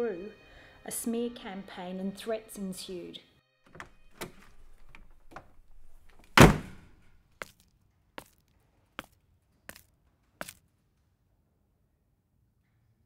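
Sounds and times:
heavy thud: 0:04.2 - 0:07.0.

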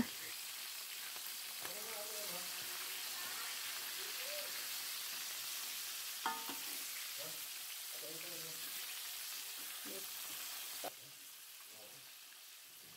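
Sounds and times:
chicken sizzling in oil: 0:00.0 - 0:12.9.

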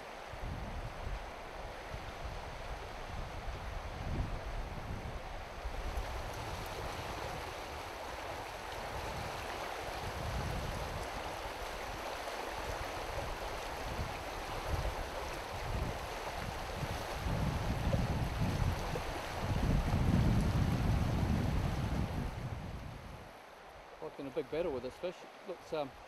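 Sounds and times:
wind gusting on microphone: 0:00.0 - 0:23.4
river water rushing over stones: 0:05.2 - 0:22.2.

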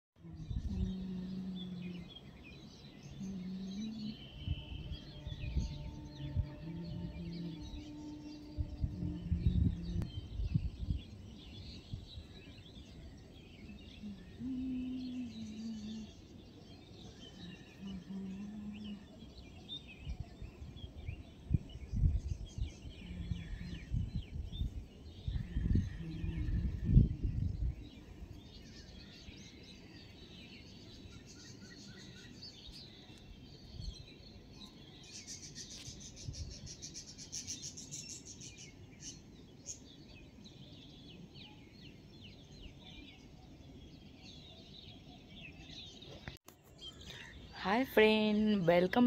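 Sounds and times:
wind buffeting microphone: 0:00.2 - 0:01.9, 0:03.3 - 0:15.3, 0:19.6 - 0:30.1, 0:35.6 - 0:38.2
low steady hum: 0:00.2 - 0:29.2
small birds chirping: 0:00.2 - 0:49.0.

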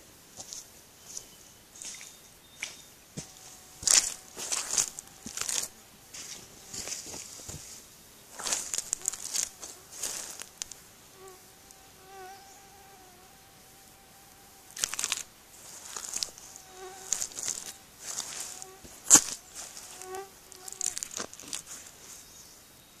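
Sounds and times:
insect buzzing: 0:01.7 - 0:22.6
boots squelching in mud: 0:01.8 - 0:07.6, 0:08.4 - 0:10.8, 0:14.7 - 0:21.9.

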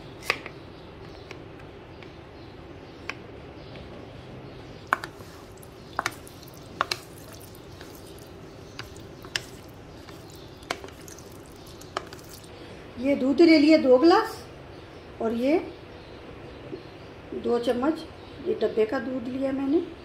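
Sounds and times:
utensils tapping plastic tub: 0:04.8 - 0:12.5
jelly squishing: 0:04.8 - 0:12.6.

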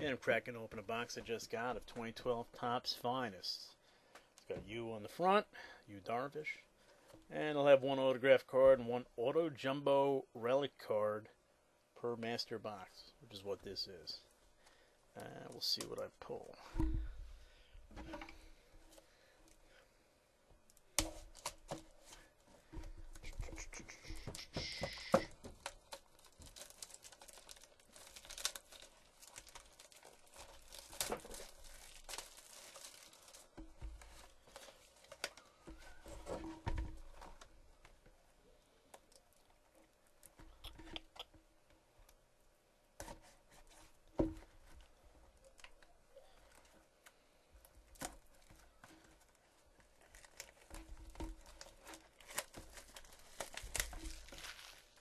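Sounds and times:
plastic wrap crinkling and tearing: 0:20.7 - 0:22.4, 0:23.1 - 0:36.3, 0:47.9 - 0:55.0.

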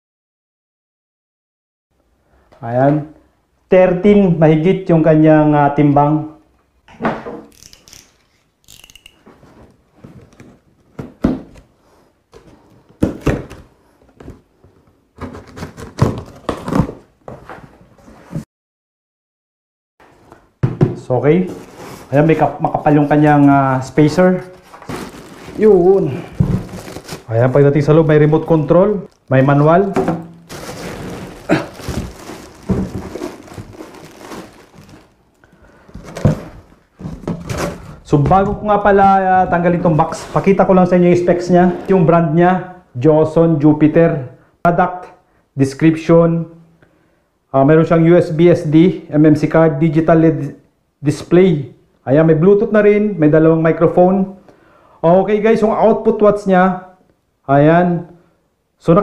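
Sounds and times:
cardboard thunks: 0:11.0 - 0:11.6, 0:12.4 - 0:14.4, 0:20.6 - 0:21.0, 0:26.3 - 0:27.2, 0:29.9 - 0:35.0, 0:35.9 - 0:38.6
heavy object thunking on table: 0:20.6 - 0:21.0, 0:26.3 - 0:26.8
plastic wrapping rustling: 0:21.5 - 0:38.0.

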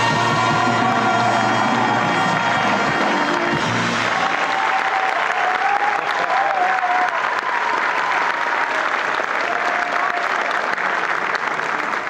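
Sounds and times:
stadium crowd applauding: 0:00.0 - 0:12.0.

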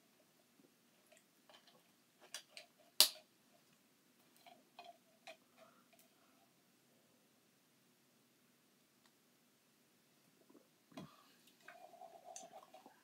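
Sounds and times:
spoon scraping a metal can: 0:11.6 - 0:13.0.

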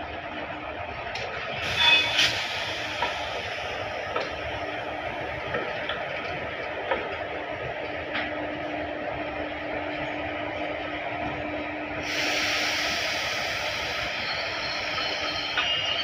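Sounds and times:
train rumbling on rails: 0:00.0 - 0:16.0
high wheel squeal: 0:01.6 - 0:03.1, 0:12.8 - 0:16.0.

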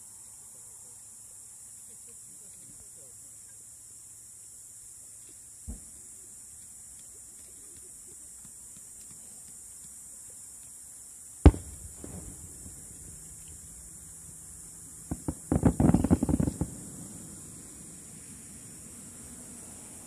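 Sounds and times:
firework cracks and bangs: 0:11.4 - 0:19.3
firework boom: 0:11.5 - 0:18.8.

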